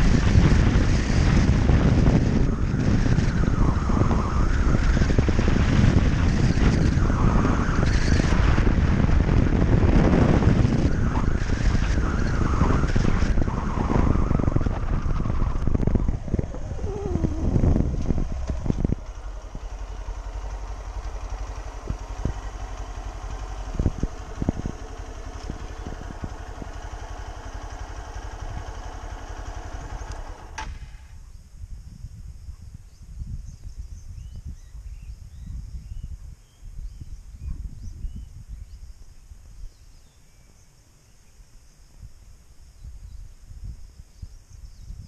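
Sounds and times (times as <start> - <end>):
motorcycle engine: 0.0 - 31.2
wind noise: 0.0 - 40.6, 41.9 - 45.0.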